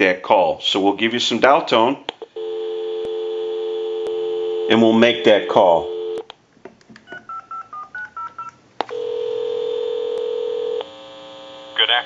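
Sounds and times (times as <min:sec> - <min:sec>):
dial tone: 0:02.4 - 0:06.2, 0:08.9 - 0:11.1
touch-tone dialing: 0:02.4 - 0:06.2
ringback tone: 0:04.1 - 0:06.2.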